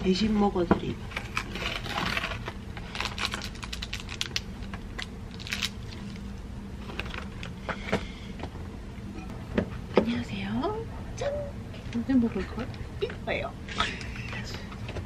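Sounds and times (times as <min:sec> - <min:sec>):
plastic packets crinkling: 0:01.2 - 0:07.6.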